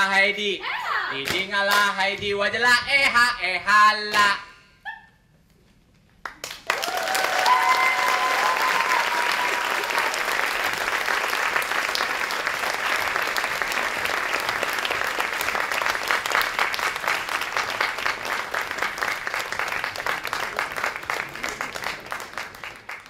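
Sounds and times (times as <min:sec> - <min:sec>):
audience applauding: 0:06.2 - 0:23.0.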